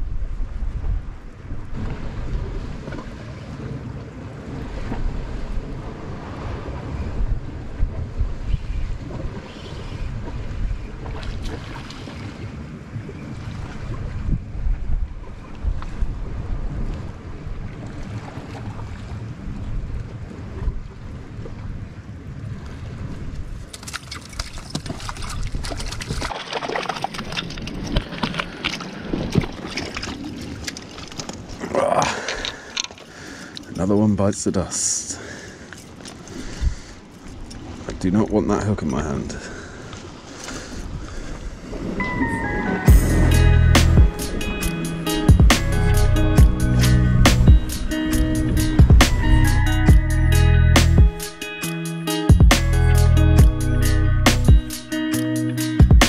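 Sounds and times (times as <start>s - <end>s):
wind buffeting microphone: 0.0s - 26.4s, 35.9s - 38.2s, 38.8s - 51.2s
sea washing against rocks: 0.7s - 21.6s, 22.6s - 46.6s
clicks and scrapes on rock: 23.7s - 28.8s.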